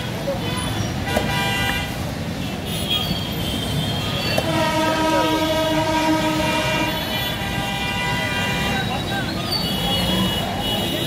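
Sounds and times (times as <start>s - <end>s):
traffic and market din: 0.0s - 11.0s
horn long blast: 3.8s - 8.9s.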